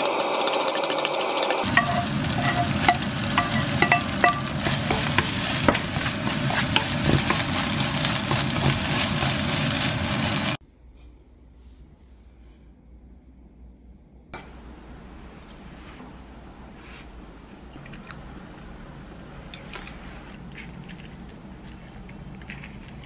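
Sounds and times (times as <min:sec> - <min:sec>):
rice sizzling in a wok: 0:00.0 - 0:10.6
spatula stirring and scraping: 0:01.6 - 0:10.6
spatula tapping on pan: 0:01.8 - 0:07.4.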